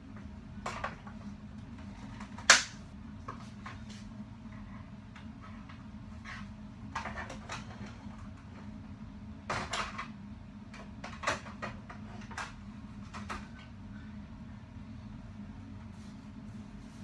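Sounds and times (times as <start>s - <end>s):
steady low hum: 0.0s - 17.0s
objects knocking and rustling: 0.2s - 4.1s, 5.1s - 8.7s.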